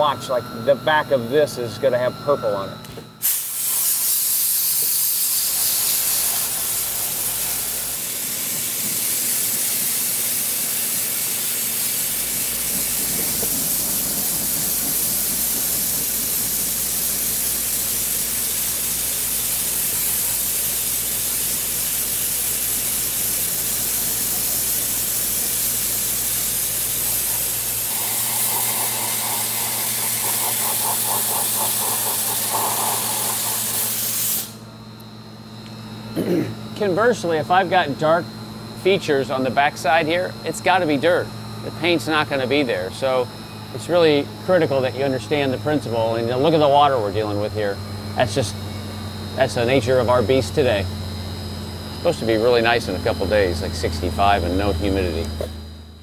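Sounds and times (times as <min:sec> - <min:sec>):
blasting gun hissing: 0:03.2 - 0:34.7
buzzing: 0:03.4 - 0:34.8.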